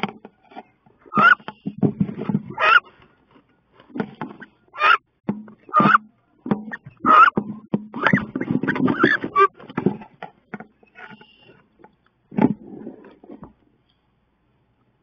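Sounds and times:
ducks scuffling in wooden box: 0.0 - 5.0, 5.6 - 11.4
harsh duck calls: 1.1 - 1.5, 2.5 - 2.8, 4.7 - 5.1, 5.7 - 6.1, 6.7 - 7.4.

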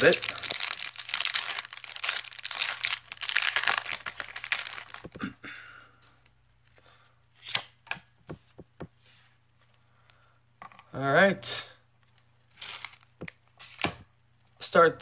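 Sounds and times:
foil wrapper crinkling and tearing: 0.0 - 5.1, 12.5 - 13.8.

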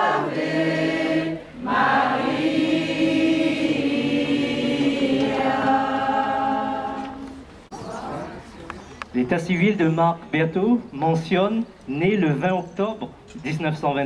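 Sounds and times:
group singing a slow hymn: 0.0 - 8.4.

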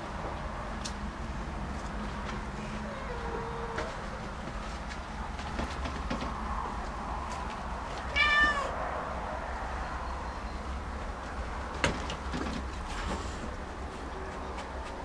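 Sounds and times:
cat meowing: 8.1 - 8.8.

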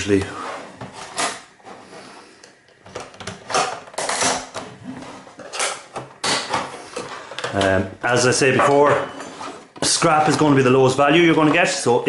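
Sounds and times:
plastic creaking and scraping: 2.5 - 11.9.

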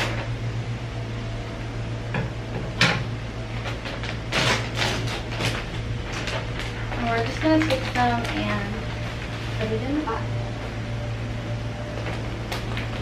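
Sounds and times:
steady low hum: 0.0 - 13.0
plastic bag rustling and crinkling: 3.5 - 10.2, 11.9 - 13.0.

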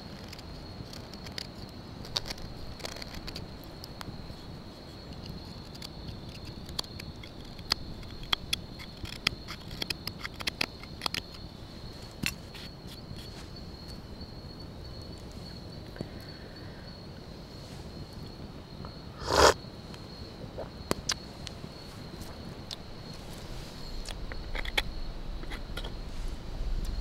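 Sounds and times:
high insect trill: 0.0 - 27.0
knife carving wood: 0.2 - 3.6, 5.2 - 11.4, 19.2 - 19.6.

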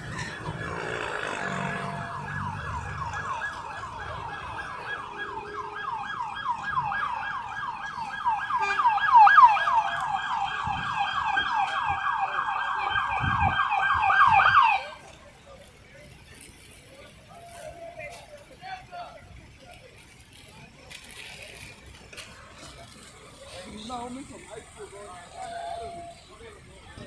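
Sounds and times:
police siren yelping: 0.0 - 15.0.

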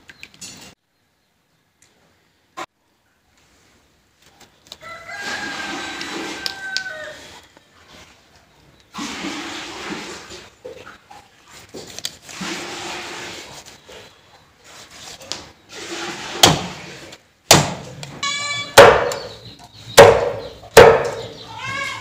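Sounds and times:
cleaver chopping onto wooden board: 17.5 - 17.8, 18.8 - 19.3, 20.0 - 21.3.

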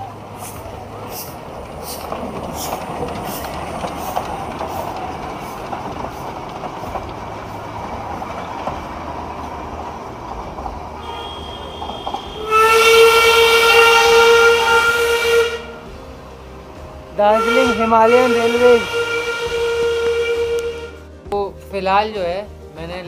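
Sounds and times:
steam train rumbling past: 0.0 - 21.3
loud steam whistle: 11.0 - 15.9, 17.2 - 21.0.

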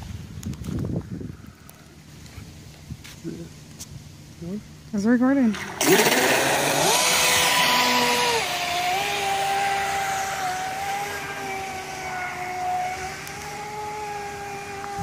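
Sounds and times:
rc boat motor whine: 5.5 - 15.0.

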